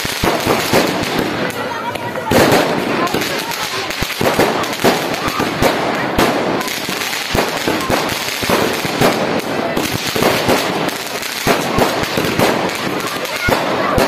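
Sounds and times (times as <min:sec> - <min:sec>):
firework bangs and crackles: 0:00.0 - 0:14.0
firework rockets launching: 0:00.0 - 0:14.0.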